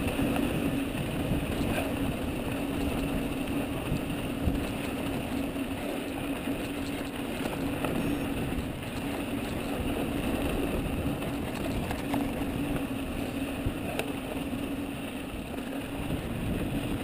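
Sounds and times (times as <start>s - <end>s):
bike tyres rumbling on gravel: 0.0s - 17.0s
gravel clicks: 0.0s - 17.0s
steady low hum: 0.0s - 17.0s
wind noise on microphone: 0.0s - 17.0s.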